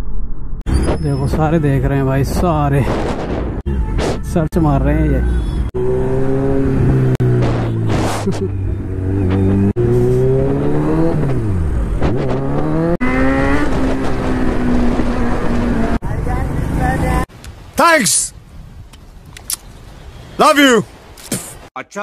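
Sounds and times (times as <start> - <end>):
motorcycle engine revving: 5.2 - 17.3.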